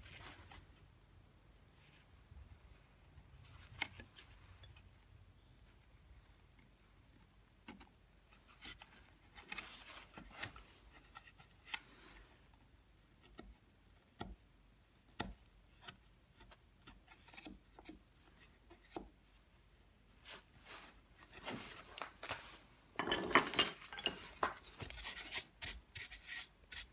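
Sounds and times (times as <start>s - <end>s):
chisel scraping wood: 23.7s - 26.9s.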